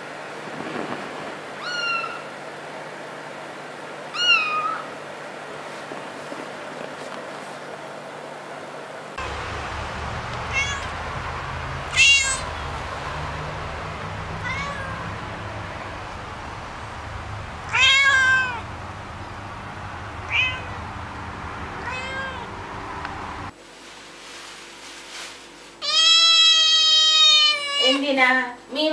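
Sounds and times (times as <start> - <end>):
cat meowing: 1.6 - 2.3, 4.1 - 4.9, 10.2 - 19.5, 20.1 - 20.9, 21.8 - 22.6, 25.8 - 28.0
steady low hum: 9.2 - 23.6.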